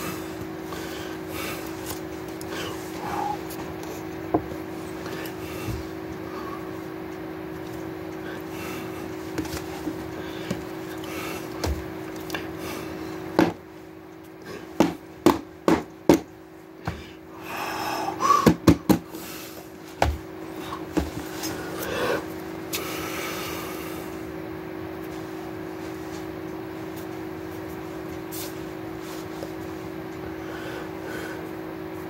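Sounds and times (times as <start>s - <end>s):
steady low hum: 0.0s - 32.0s
book knocks and taps: 14.8s - 17.0s.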